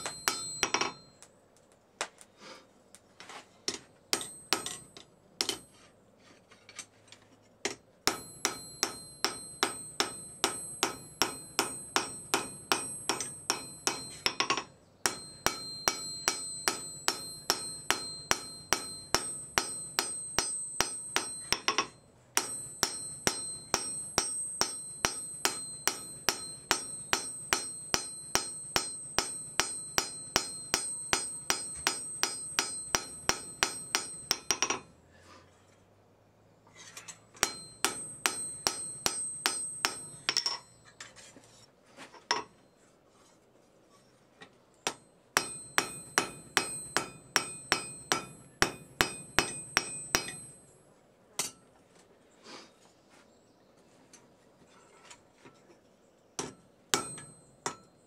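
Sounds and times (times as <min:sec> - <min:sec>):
hammer ringing on anvil: 0:00.0 - 0:01.3, 0:04.1 - 0:05.8, 0:08.1 - 0:35.0, 0:37.4 - 0:41.0, 0:44.9 - 0:50.8, 0:56.4 - 0:58.0.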